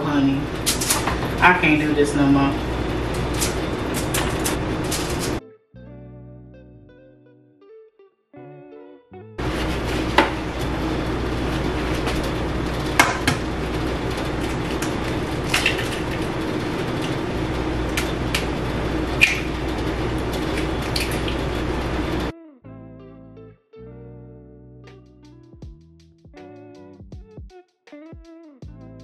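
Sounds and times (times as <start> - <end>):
steady hiss and hum: 0.0 - 5.4, 9.4 - 22.3.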